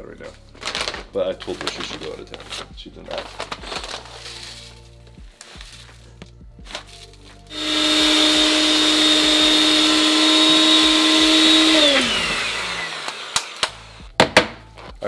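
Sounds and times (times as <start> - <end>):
blender grinding oats: 7.5 - 14.1.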